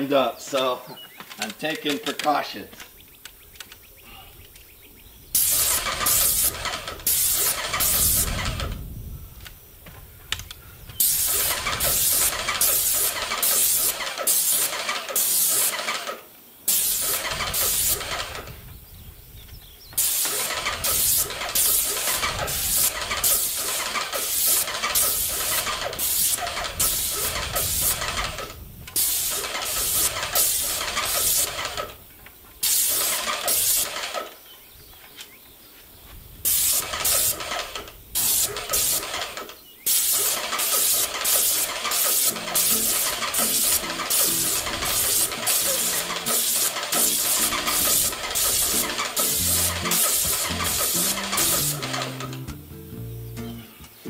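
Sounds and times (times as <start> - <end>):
spray hissing: 5.3 - 8.5, 11.0 - 16.0, 16.7 - 18.3, 20.0 - 28.4, 29.0 - 31.8, 32.6 - 34.0, 36.4 - 52.5
paint sprayer pump pulsing: 5.4 - 8.7, 11.0 - 18.5, 20.0 - 32.0, 36.5 - 52.5.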